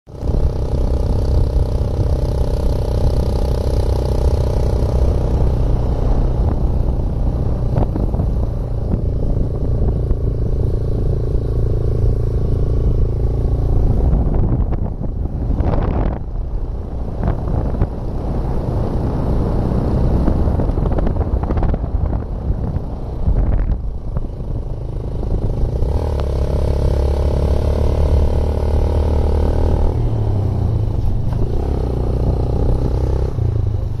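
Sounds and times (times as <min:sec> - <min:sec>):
road and wind noise: 0:00.1 - 0:34.0
vehicle engine rumble: 0:00.1 - 0:34.0.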